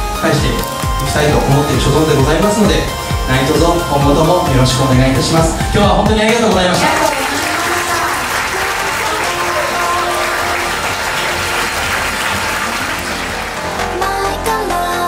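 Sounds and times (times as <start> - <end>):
soft background music: 0.0 - 15.0
guests applauding: 6.3 - 14.5.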